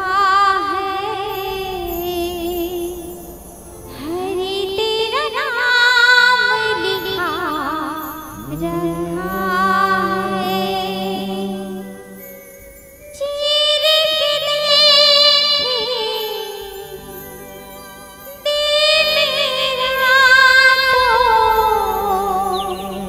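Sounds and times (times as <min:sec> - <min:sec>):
low drone note: 0:00.0 - 0:12.3
woman singing: 0:00.0 - 0:12.4, 0:13.0 - 0:23.0.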